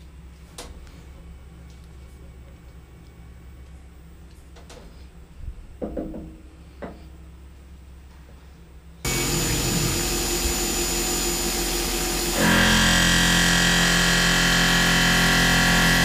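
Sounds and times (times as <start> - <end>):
milling machine running with whine: 9.1 - 16.0.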